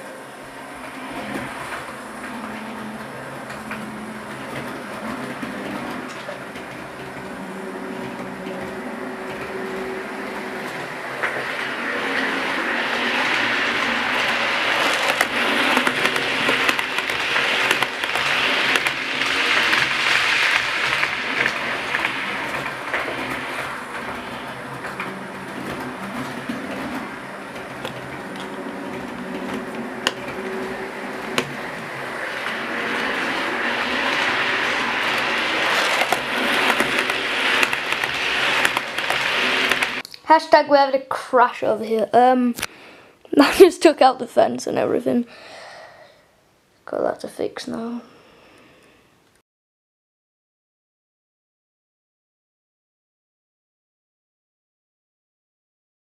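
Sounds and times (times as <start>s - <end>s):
wheels clicking over rail joints: 0.0s - 40.2s.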